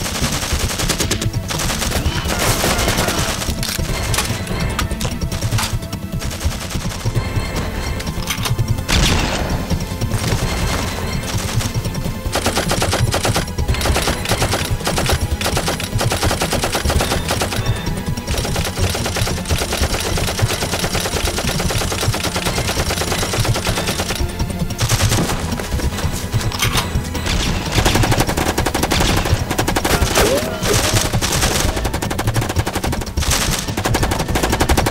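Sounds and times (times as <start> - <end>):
automatic gunfire: 0.0 - 34.9.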